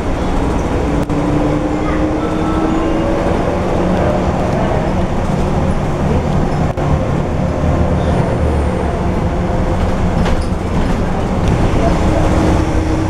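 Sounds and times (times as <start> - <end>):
bus diesel engine drone: 0.0 - 13.0.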